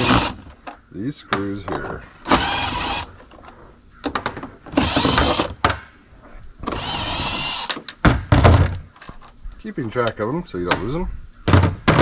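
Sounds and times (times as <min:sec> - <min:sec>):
cordless drill whining: 0:00.0 - 0:00.4, 0:02.3 - 0:03.1, 0:04.8 - 0:05.5, 0:06.7 - 0:07.8.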